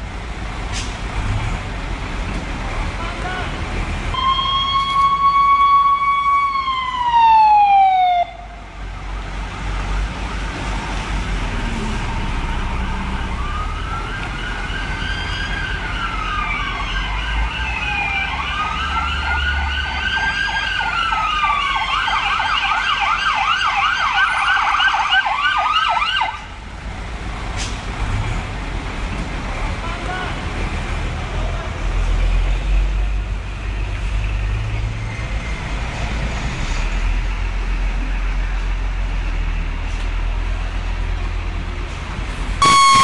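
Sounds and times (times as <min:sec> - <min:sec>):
low traffic rumble: 0:00.0 - 0:43.0
fire engine siren: 0:04.1 - 0:26.6, 0:42.6 - 0:43.0.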